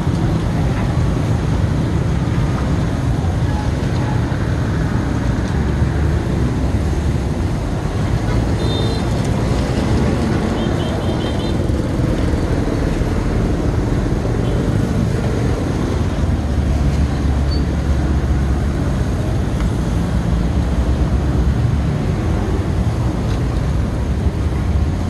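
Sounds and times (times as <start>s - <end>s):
low rumbling street noise: 0.0s - 25.0s.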